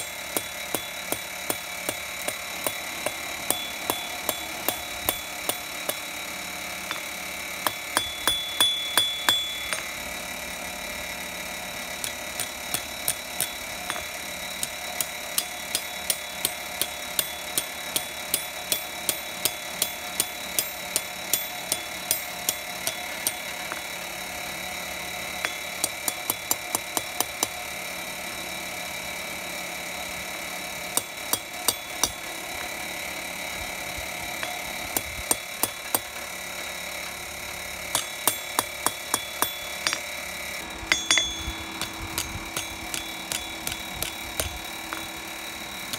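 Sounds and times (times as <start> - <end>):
hammer striking metal on anvil: 0.0 - 6.2, 6.8 - 10.2, 12.0 - 23.9, 25.4 - 27.6, 31.0 - 32.3, 34.4 - 36.2, 37.9 - 45.9.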